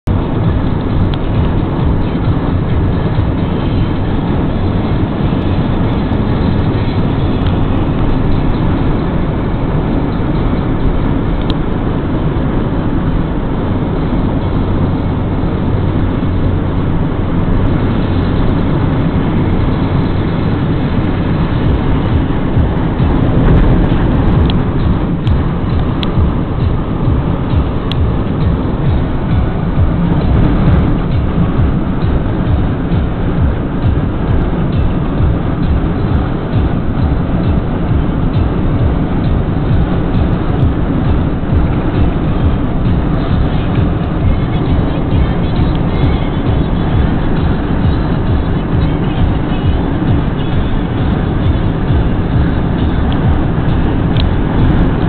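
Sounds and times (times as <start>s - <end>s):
low hum: 0.0s - 55.0s
vehicle road noise: 0.0s - 55.0s.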